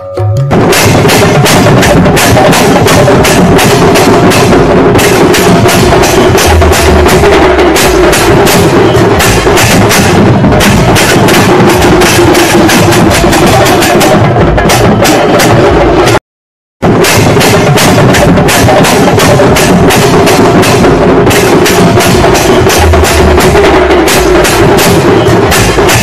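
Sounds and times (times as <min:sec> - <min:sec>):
low drum thuds: 0:00.4 - 0:16.2
brass hand cymbals clashing: 0:17.0 - 0:26.0.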